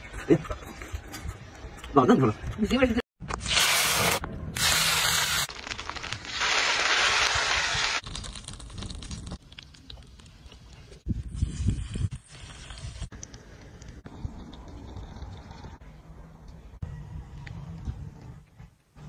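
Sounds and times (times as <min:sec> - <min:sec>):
oil sizzling on hot stone: 0:03.4 - 0:10.2.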